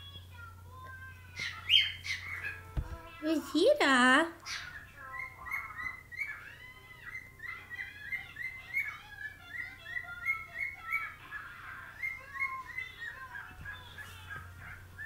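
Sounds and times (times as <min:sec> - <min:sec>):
cockatiel warbling: 0:01.4 - 0:02.7, 0:04.4 - 0:15.0
cockatiel whistling: 0:04.4 - 0:15.0.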